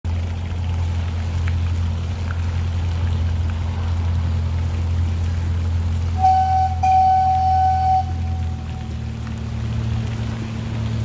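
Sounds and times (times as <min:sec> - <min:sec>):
miniature train engine droning: 0:06.1 - 0:09.4.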